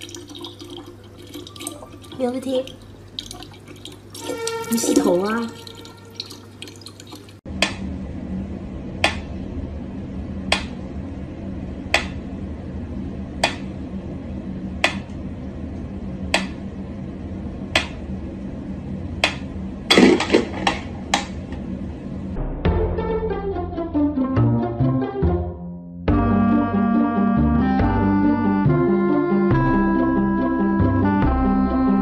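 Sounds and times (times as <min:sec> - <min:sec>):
low steady hum: 0:00.0 - 0:22.6.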